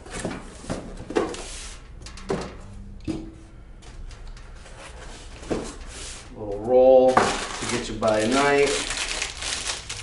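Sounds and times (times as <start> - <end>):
packaging rustling: 7.0 - 10.0.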